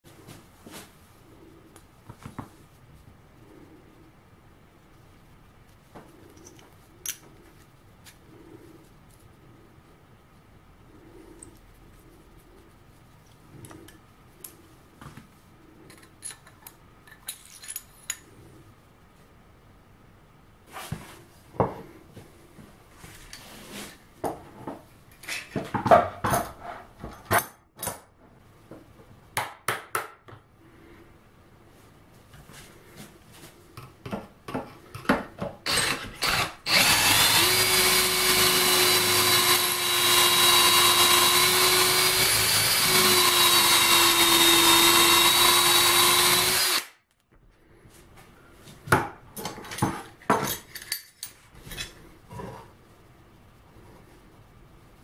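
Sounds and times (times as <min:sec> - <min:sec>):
cordless drill boring wood: 0:35.7 - 0:46.9.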